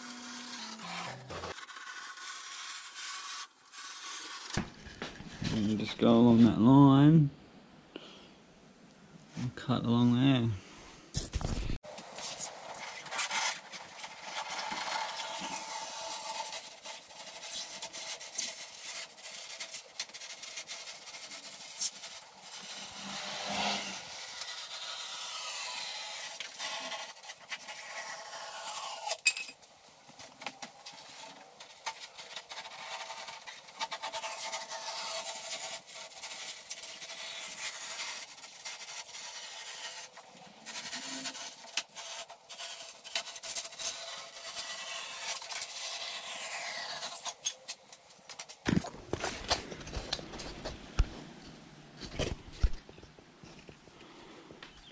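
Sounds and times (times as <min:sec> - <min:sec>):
knife sawing foam: 0:00.0 - 0:04.6, 0:12.1 - 0:29.2, 0:30.8 - 0:47.5.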